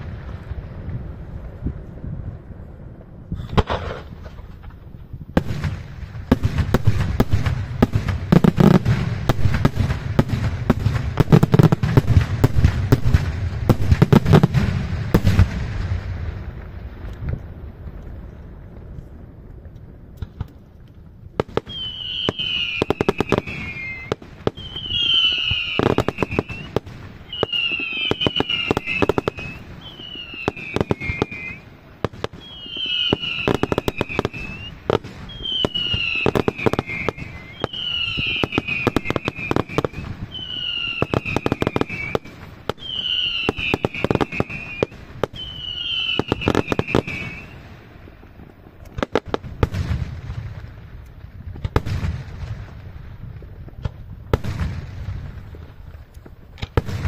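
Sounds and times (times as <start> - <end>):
deep firework booms: 0.0 - 57.0
firework bangs and crackling: 0.0 - 57.0
whistling firework shells: 21.4 - 50.3.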